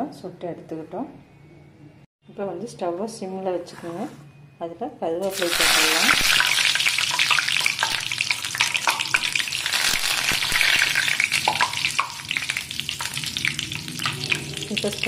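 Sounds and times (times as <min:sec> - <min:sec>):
leaves sizzling in hot oil: 0:05.2 - 0:15.0.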